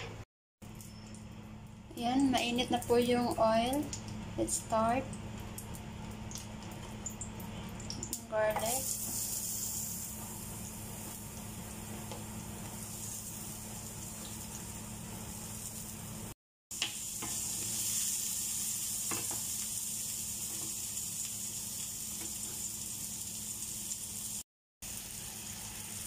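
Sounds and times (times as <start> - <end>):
food sizzling in oil: 8.0 - 26.0.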